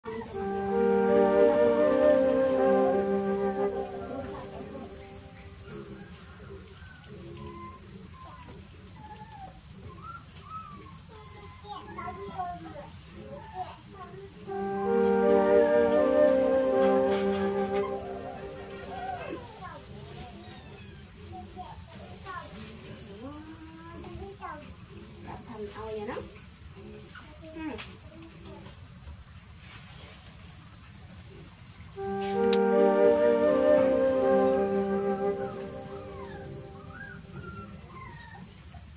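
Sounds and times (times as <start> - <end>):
faint gliding calls: 0.3 - 5.5, 14.5 - 19.6, 32.0 - 37.2.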